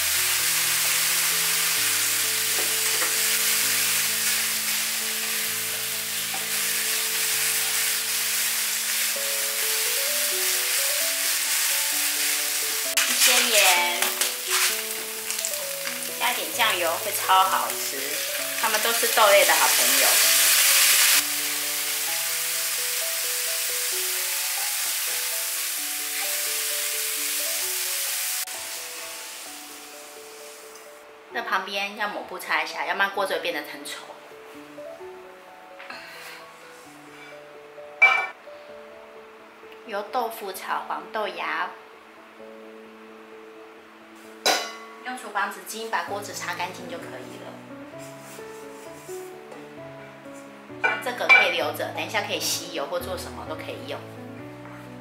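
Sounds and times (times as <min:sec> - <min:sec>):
food sizzling in a wok: 0:00.0 - 0:31.5, 0:44.1 - 0:55.0
soft background music: 0:00.0 - 0:55.0.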